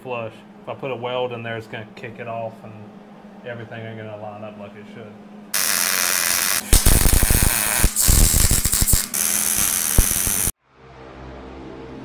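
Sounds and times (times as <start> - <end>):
welding arc hissing and crackling: 5.6 - 10.6.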